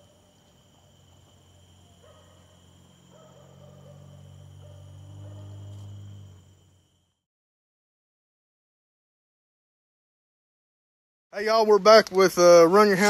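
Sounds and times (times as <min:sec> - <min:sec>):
distant dogs baying: 0:00.0 - 0:06.5
crickets chirring: 0:00.0 - 0:07.2, 0:11.4 - 0:13.0.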